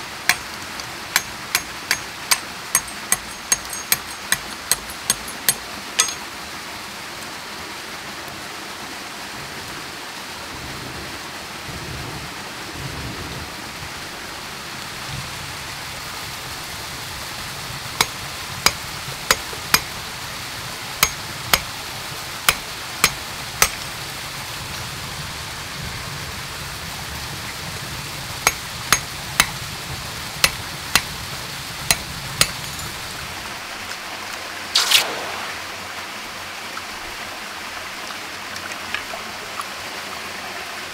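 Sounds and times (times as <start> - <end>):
stream water rushing: 0.0 - 10.6, 14.0 - 40.9
machete striking metal wire: 0.3 - 6.2, 18.0 - 19.9, 21.0 - 21.7, 22.5 - 23.8, 31.9 - 32.9, 34.8 - 35.1
water splashing on gravel: 30.4 - 34.1, 34.7 - 36.4.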